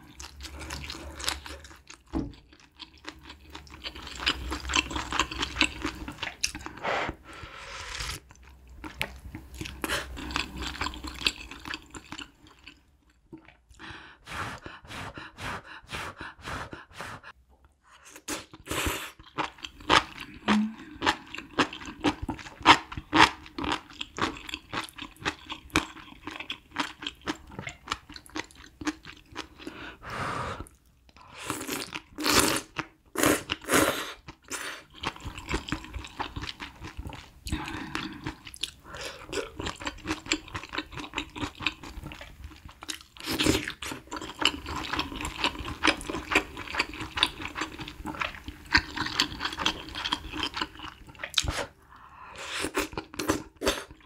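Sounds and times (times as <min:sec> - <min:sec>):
wet crunchy chewing: 0:31.6 - 0:51.8.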